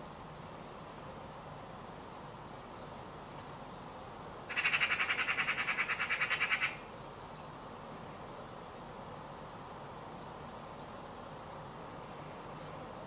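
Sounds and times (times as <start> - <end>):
magpie rattling chatter: 4.5 - 6.8.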